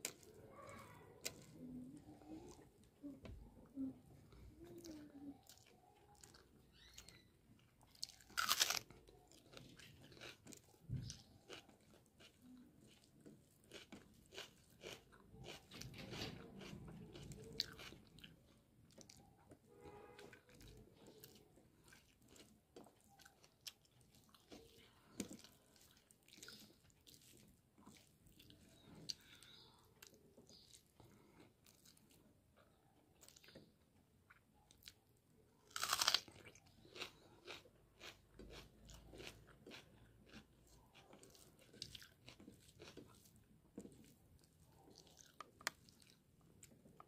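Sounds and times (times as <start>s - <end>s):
person chewing food: 0.0s - 47.0s
sharp crunch: 8.4s - 8.9s.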